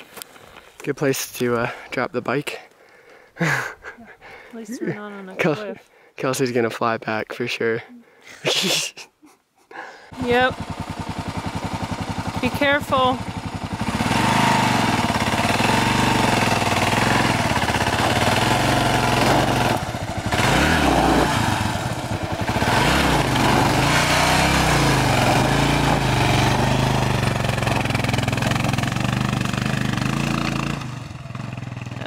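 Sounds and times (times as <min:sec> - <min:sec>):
motorcycle engine revving hard: 0:10.1 - 0:32.0.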